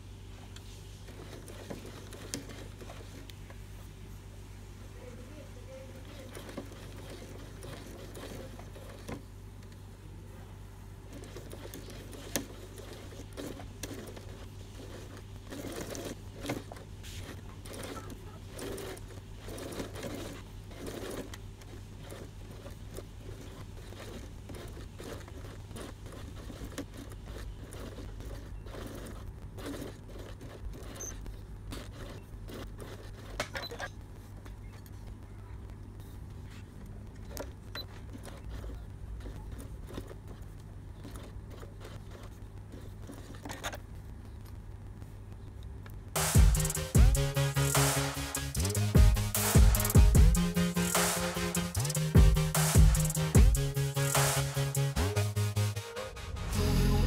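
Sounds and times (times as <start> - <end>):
sewing machine stitching: 0.0 - 3.3, 5.0 - 9.9, 10.9 - 34.0, 36.0 - 43.9, 46.2 - 56.6.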